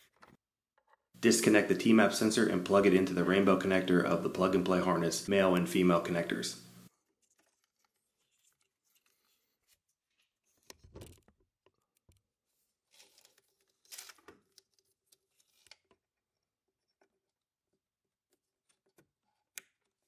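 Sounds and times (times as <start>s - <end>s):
plastic connectors rustling and scraping: 7.0s - 17.3s.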